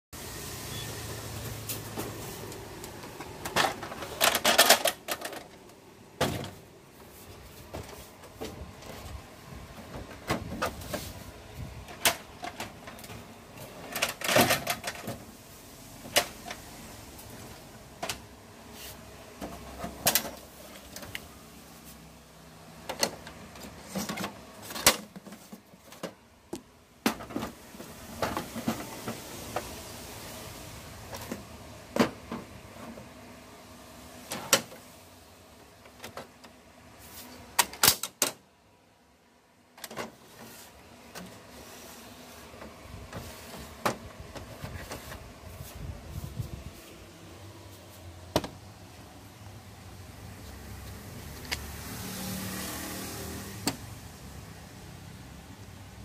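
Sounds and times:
plastic covers clicking and knocking: 2.5s - 6.6s, 11.8s - 15.3s, 22.8s - 29.7s
plastic parts rattling: 2.5s - 6.6s, 11.9s - 15.3s.

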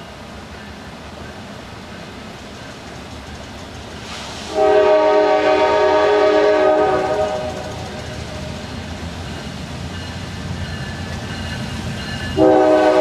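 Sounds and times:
approaching train rumble: 0.0s - 13.0s
locomotive air horn blast: 4.5s - 7.8s, 12.4s - 13.0s.

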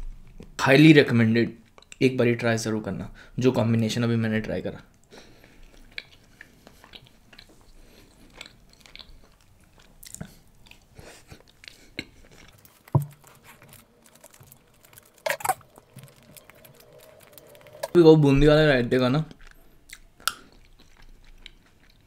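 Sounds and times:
wet chewing mouth clicks: 5.0s - 18.0s, 19.3s - 22.0s.

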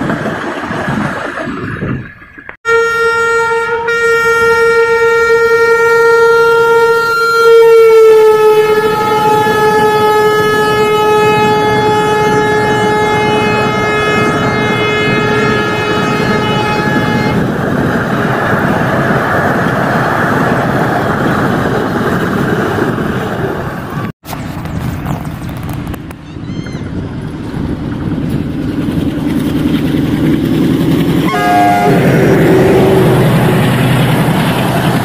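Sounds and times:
train coaches rattling on rails: 0.0s - 2.6s, 8.4s - 35.0s
locomotive horn blast: 2.6s - 17.5s, 31.2s - 33.6s.

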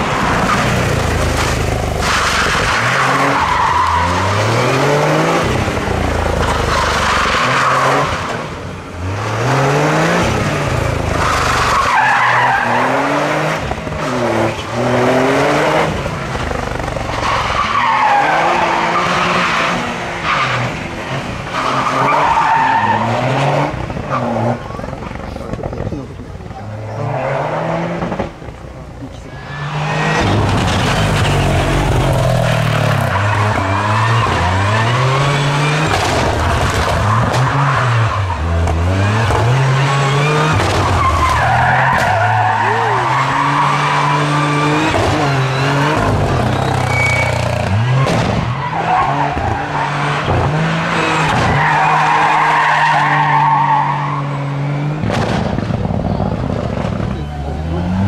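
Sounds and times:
car engine revving hard: 0.0s - 25.0s, 29.6s - 58.0s
tyres squealing: 40.8s - 49.9s.

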